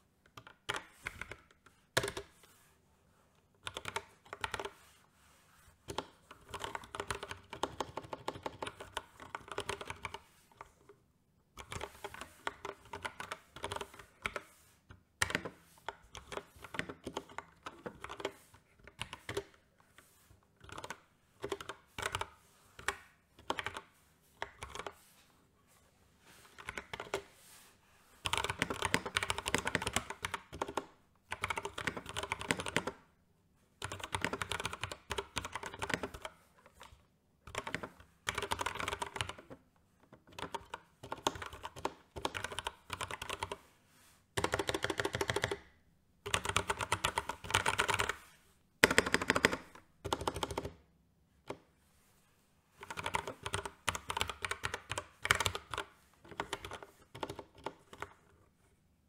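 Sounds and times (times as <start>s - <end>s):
mechanical keyboard typing: 3.6s - 4.7s, 5.9s - 10.3s, 11.6s - 14.4s, 15.2s - 19.6s, 20.6s - 23.8s, 24.4s - 24.9s, 28.2s - 33.0s, 33.8s - 39.6s, 40.2s - 43.6s, 44.4s - 48.2s, 48.8s - 50.8s, 52.8s - 58.3s.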